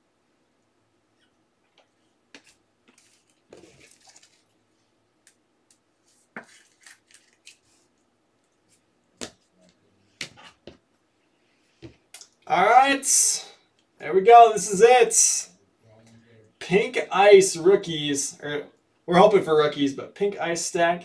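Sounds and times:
soft brushing: 0:06.0 - 0:08.0
cards clicking and tapping: 0:06.4 - 0:07.6.

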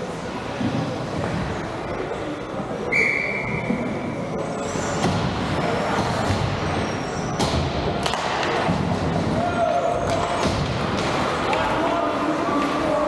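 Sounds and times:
ice hockey arena noise: 0:00.0 - 0:13.0
referee's whistle: 0:02.9 - 0:03.8.

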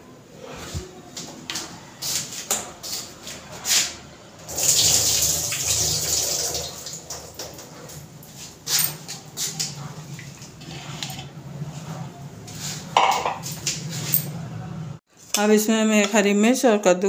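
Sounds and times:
water pouring and splashing: 0:04.5 - 0:08.1
dishes clicking and knocking: 0:13.0 - 0:13.6.

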